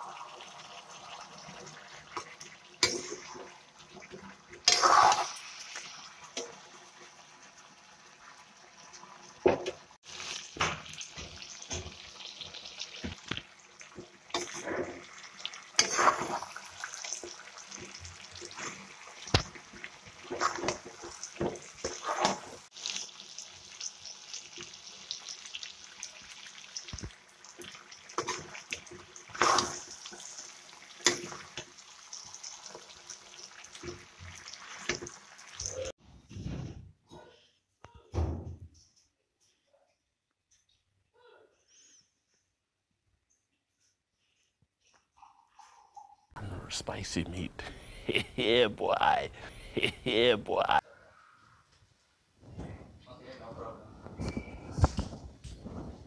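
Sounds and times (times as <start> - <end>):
food sizzling: 0.0 - 36.0, 46.6 - 50.8.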